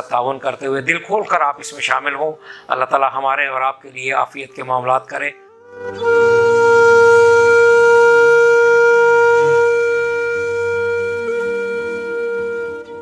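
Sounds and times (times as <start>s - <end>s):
long held wind instrument note: 5.4s - 13.0s.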